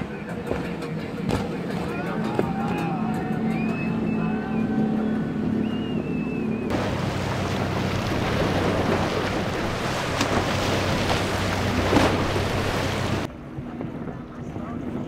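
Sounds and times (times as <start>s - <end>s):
outboard engine running: 0.0s - 13.3s
water against hull: 0.0s - 14.0s
wind buffeting microphone: 6.2s - 15.0s
loud splash: 6.7s - 13.3s.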